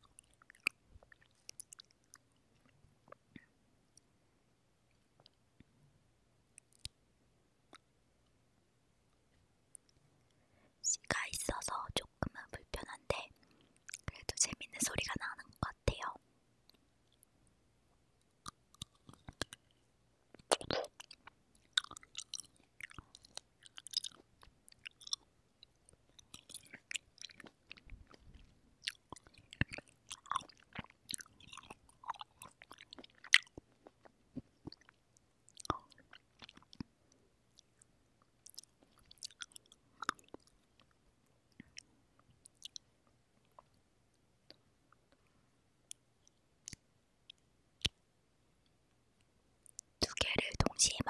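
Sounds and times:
chewing juicy cherries: 0.0 - 3.4, 11.7 - 14.3, 18.3 - 43.8.

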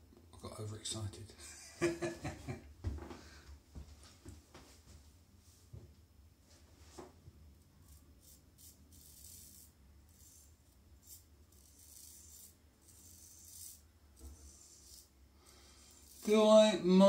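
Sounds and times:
razor scraping stubble: 7.8 - 16.5.

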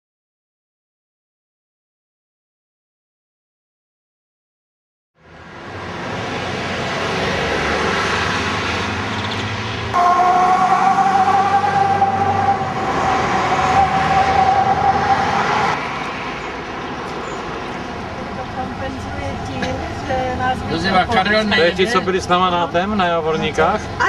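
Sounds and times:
vehicle engine hum: 5.2 - 24.0
high two-note siren-like whine: 10.0 - 15.8.

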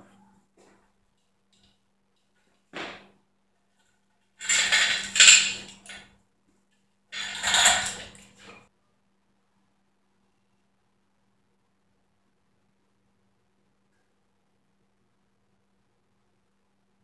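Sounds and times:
hoist chain rattling: 4.4 - 6.1, 7.2 - 8.6
metal clanking: 4.4 - 6.1, 7.2 - 8.6.

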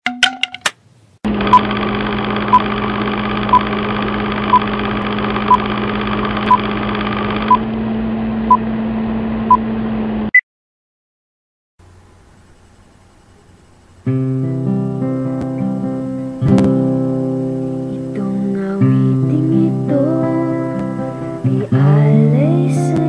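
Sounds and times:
film projector whirr: 1.3 - 10.1.

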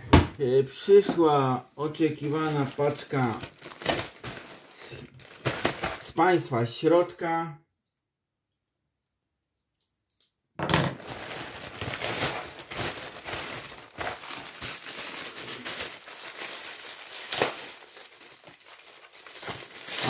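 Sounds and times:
plastic bag crinkling and tearing: 1.9 - 6.2, 10.9 - 20.0.

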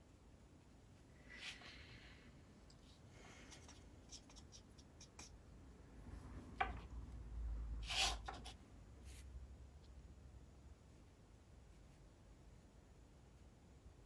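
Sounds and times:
brush scratching on paper: 2.8 - 5.4.

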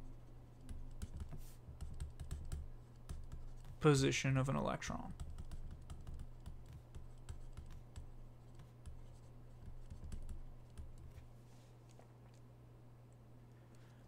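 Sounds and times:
low electrical hum: 0.0 - 14.0
stylus tapping on tablet: 0.6 - 3.8, 5.1 - 11.2.

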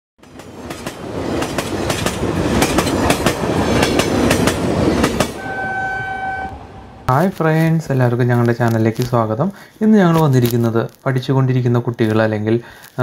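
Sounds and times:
steady pitched tone: 5.4 - 7.2.

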